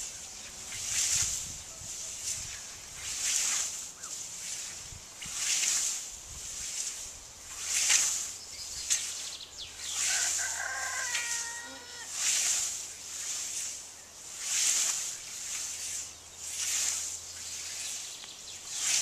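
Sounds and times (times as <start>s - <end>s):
scythes swishing through grass: 0.0s - 19.0s
rooster crowing: 10.0s - 12.1s.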